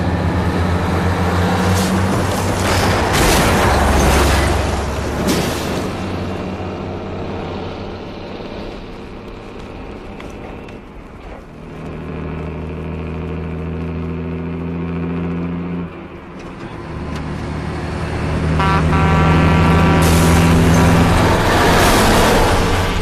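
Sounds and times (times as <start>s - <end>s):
diesel truck engine under load: 0.0s - 23.0s.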